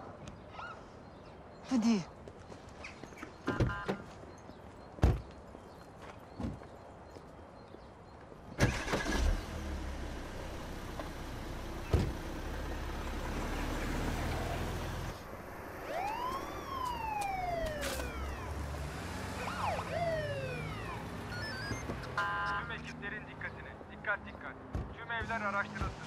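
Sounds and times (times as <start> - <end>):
car engine humming: 8.6 - 22.7
police siren whoop: 15.8 - 18.7, 19.3 - 21.9.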